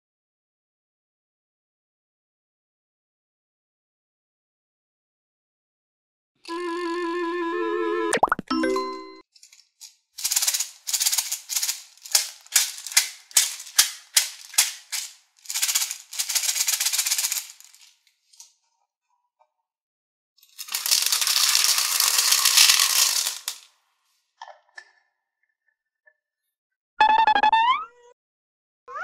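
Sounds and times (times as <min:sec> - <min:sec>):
plastic beads rattling in bottle: 0:09.4 - 0:18.4, 0:20.4 - 0:23.7
beads pouring into plastic tray: 0:09.5 - 0:18.0, 0:20.4 - 0:23.7
light clicks of beads: 0:20.4 - 0:23.7.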